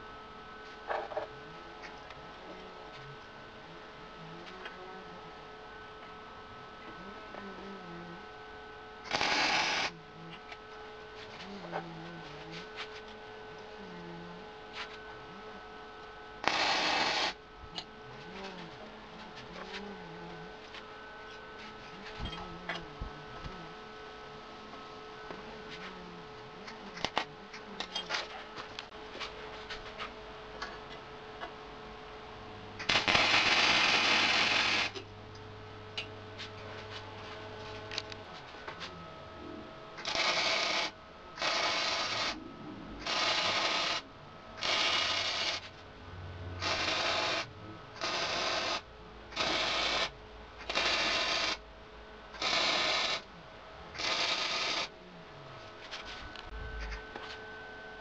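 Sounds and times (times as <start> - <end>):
welder arc crackling: 9.0 - 10.6, 16.0 - 17.9, 26.6 - 28.9, 32.8 - 35.0, 40.0 - 42.4, 43.0 - 44.0, 44.6 - 45.8, 46.6 - 51.6, 52.4 - 53.3.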